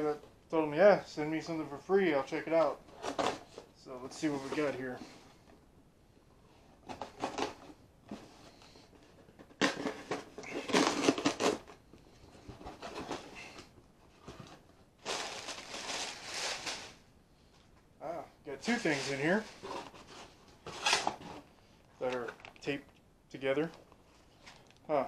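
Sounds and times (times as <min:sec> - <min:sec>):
plastic air pillows crinkling: 0:14.5 - 0:17.0.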